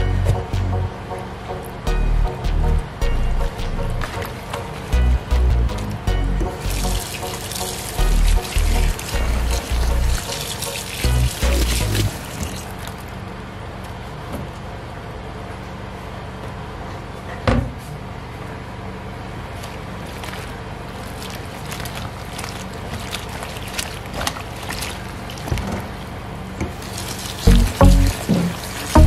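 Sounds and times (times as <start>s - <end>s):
running tap water: 6.5s - 13.1s, 20.0s - 29.0s
vegetables swishing and splashing in water: 6.5s - 13.2s, 19.4s - 29.0s.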